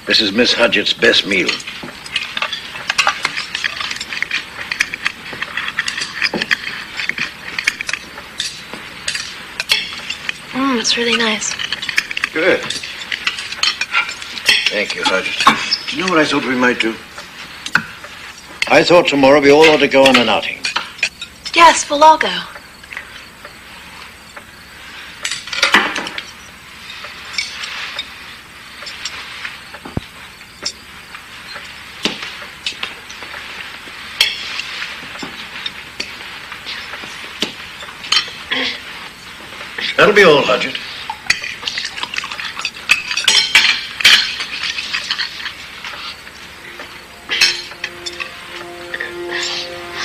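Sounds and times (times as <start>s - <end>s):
cutlery and china clinking: 1.1s - 16.8s, 25.2s - 28.2s, 34.2s - 38.7s, 39.6s - 50.0s.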